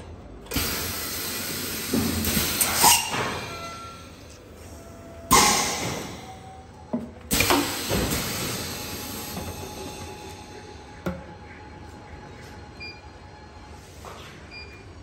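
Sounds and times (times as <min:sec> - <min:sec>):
sharp pneumatic clicks: 0:00.5 - 0:03.7, 0:05.3 - 0:06.3, 0:07.3 - 0:10.1.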